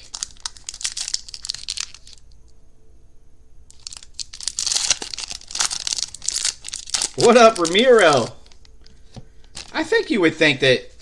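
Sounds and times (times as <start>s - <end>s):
foil wrapper tearing and crinkling: 0.0s - 2.2s, 3.7s - 8.6s, 9.5s - 9.8s.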